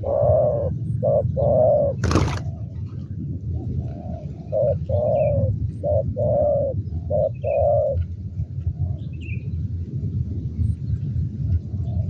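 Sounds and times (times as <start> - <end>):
doves cooing: 0.0 - 9.1
low rumble: 0.0 - 12.0.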